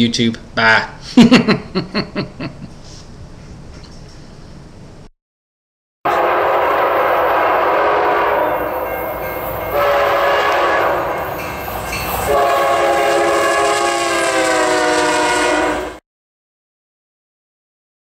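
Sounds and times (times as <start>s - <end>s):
train air horn blast: 6.1s - 11.4s, 12.2s - 16.0s.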